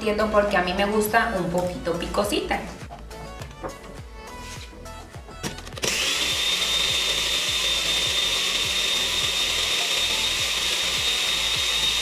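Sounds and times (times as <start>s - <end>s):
blender motor whine: 5.8s - 12.0s.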